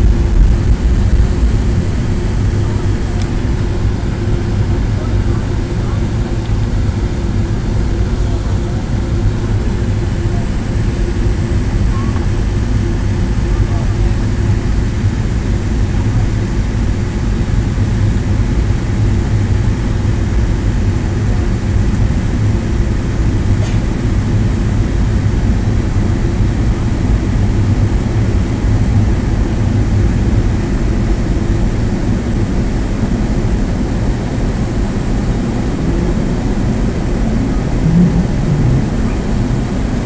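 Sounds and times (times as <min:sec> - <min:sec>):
airplane cabin rumble: 0:00.0 - 0:40.0
faint high whine: 0:35.6 - 0:40.0.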